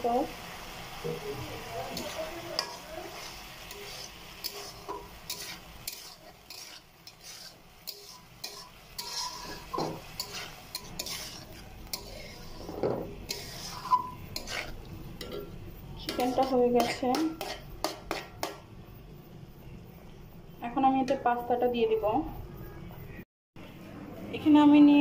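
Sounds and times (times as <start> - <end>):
light sizzle: 0.0 - 19.1
metal spatula scraping pan: 1.9 - 18.6.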